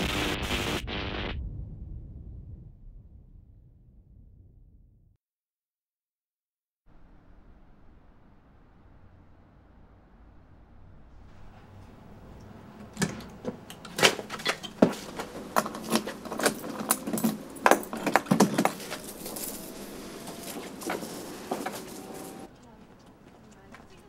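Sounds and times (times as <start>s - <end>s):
metal keys jangling: 13.0s - 22.5s.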